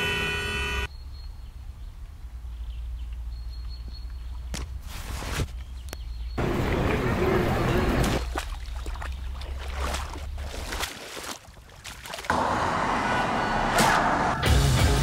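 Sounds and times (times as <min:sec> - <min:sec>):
wading through shallow water: 0:06.4 - 0:12.3
boat pushed through shallows: 0:06.4 - 0:12.6.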